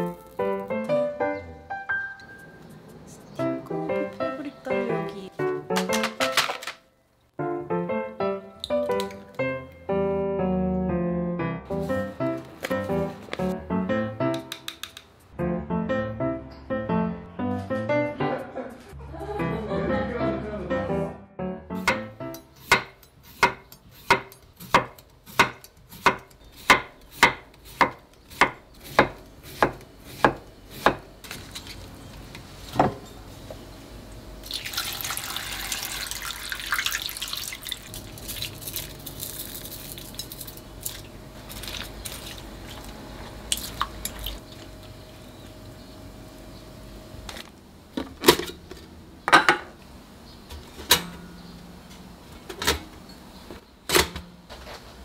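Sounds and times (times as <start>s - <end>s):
knife chopping on wooden board: 22.6s - 31.1s
water pouring and splashing: 34.4s - 44.8s.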